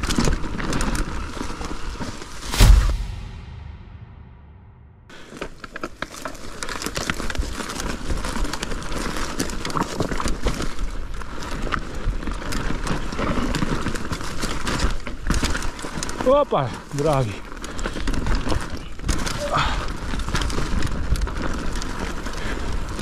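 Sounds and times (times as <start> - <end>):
bike tyres crunching over stones: 0.0 - 2.5, 5.6 - 23.0
bike chain and frame rattling: 6.7 - 23.0.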